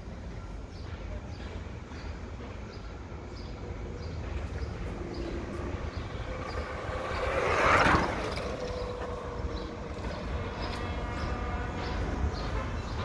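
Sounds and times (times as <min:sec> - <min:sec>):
low street rumble: 0:00.0 - 0:13.0
electric scooter passing by: 0:04.4 - 0:13.0.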